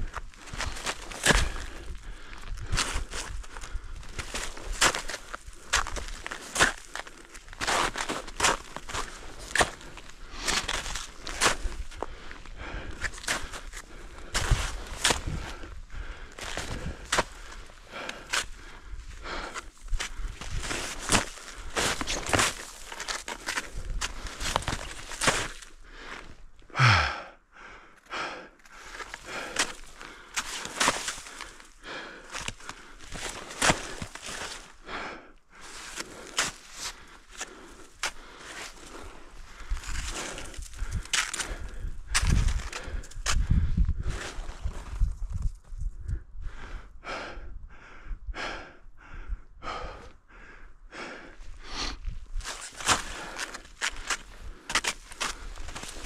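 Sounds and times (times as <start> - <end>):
snowshoe steps crunching snow: 0.1 - 1.8, 4.1 - 12.0, 13.0 - 15.6, 19.5 - 25.8, 28.8 - 31.7, 32.3 - 34.7, 35.6 - 39.2, 52.4 - 56.0
breathing: 0.1 - 7.3, 9.0 - 45.0, 46.0 - 56.0
person sighing: 26.7 - 27.4
wind rumble on microphone: 39.8 - 48.4.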